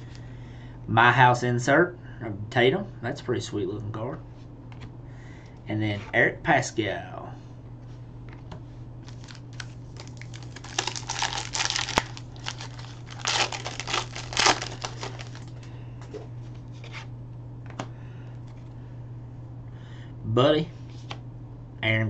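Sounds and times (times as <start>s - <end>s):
steady low hum: 0.0s - 22.0s
foil wrapper tearing and crinkling: 9.1s - 15.6s.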